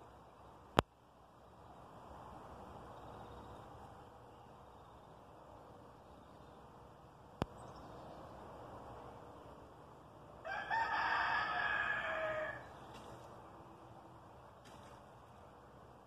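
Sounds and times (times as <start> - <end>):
rooster crowing: 10.4 - 12.7.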